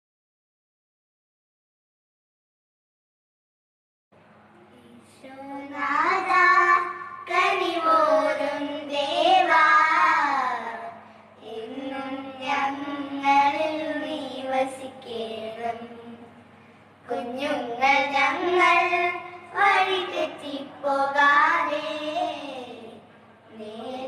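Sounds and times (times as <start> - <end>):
children singing a devotional song: 5.1 - 16.3, 17.1 - 24.0.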